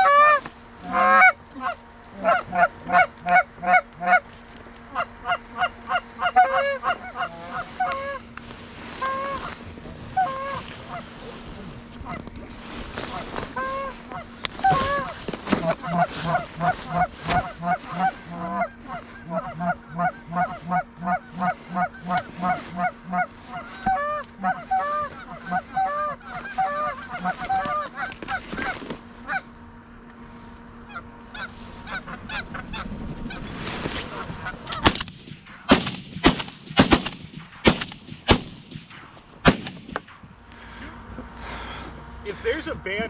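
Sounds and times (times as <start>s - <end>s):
geese honking: 0.0s - 29.8s, 30.6s - 35.0s
shotgun blasts: 34.8s - 40.3s.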